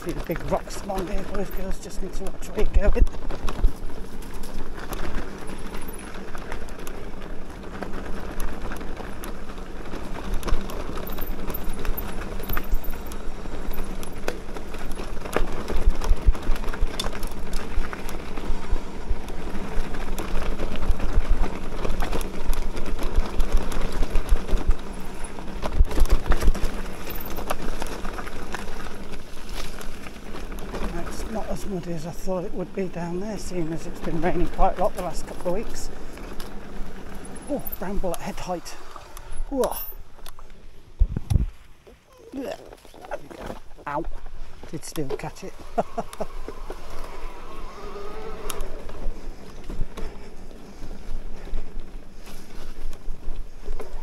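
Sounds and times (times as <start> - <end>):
bike knocking and rattling: 0.0 - 54.0
tyres rumbling on stones: 0.0 - 54.0.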